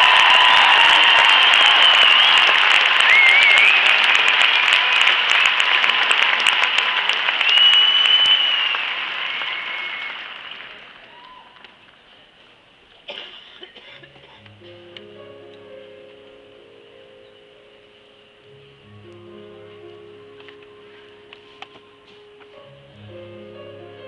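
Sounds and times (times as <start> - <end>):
arena crowd applauding: 0.0 - 12.0
whistles: 1.3 - 4.1, 7.4 - 10.4
music: 14.0 - 24.0.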